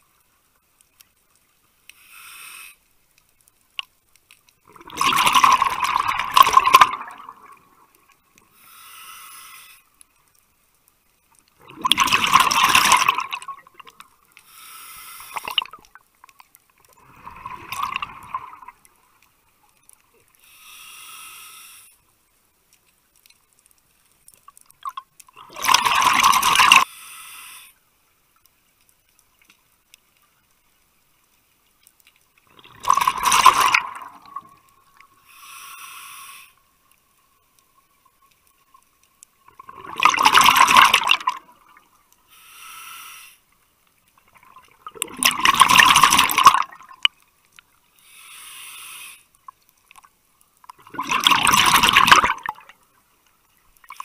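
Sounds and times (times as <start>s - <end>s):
regulator inhalation hiss: 1.9s - 2.9s, 8.5s - 10.0s, 14.4s - 15.6s, 20.4s - 22.0s, 26.8s - 27.8s, 35.2s - 36.7s, 42.3s - 43.5s, 48.0s - 49.3s
exhaled bubbles underwater: 4.7s - 8.1s, 11.6s - 14.0s, 16.9s - 19.0s, 24.8s - 26.8s, 32.5s - 34.6s, 39.5s - 41.9s, 44.3s - 47.1s, 50.7s - 52.8s.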